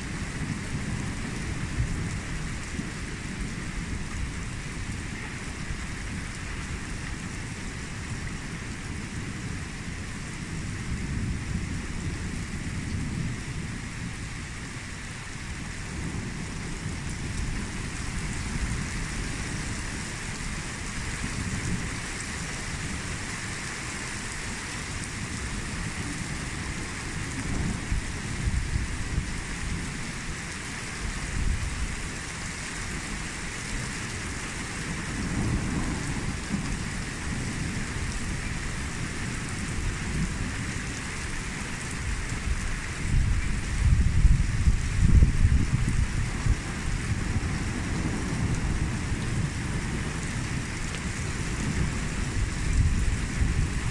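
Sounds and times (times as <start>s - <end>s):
steady rain falling: 0.0s - 53.9s
thunder rumbling: 25.9s - 30.4s, 35.0s - 53.9s.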